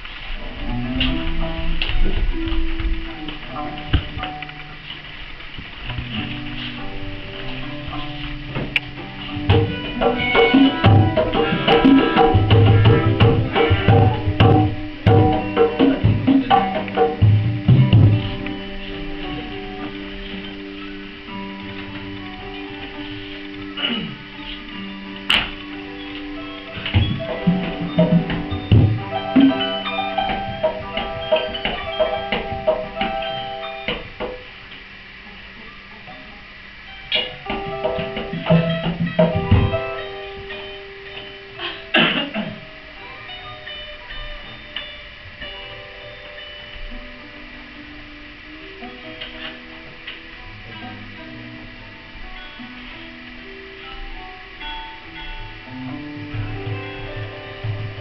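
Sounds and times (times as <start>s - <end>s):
hand drums playing: 5.8s - 34.5s, 37.1s - 42.8s, 55.0s - 58.0s
tuned percussion ensemble: 5.9s - 23.0s, 23.7s - 34.9s
ringing pitched tones: 25.8s - 34.1s.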